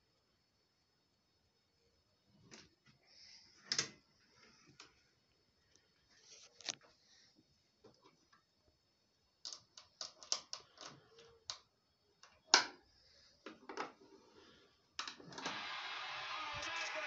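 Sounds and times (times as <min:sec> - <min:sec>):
faint radio broadcast: 0:09.4 - 0:17.0
radio hiss: 0:15.2 - 0:17.0.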